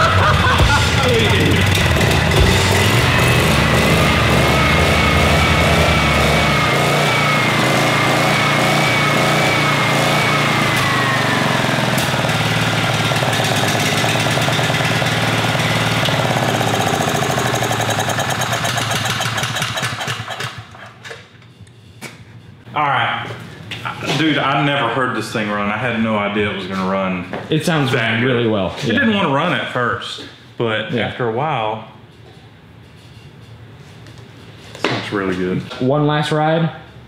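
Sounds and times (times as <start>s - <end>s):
generator engine running: 0.0s - 21.0s.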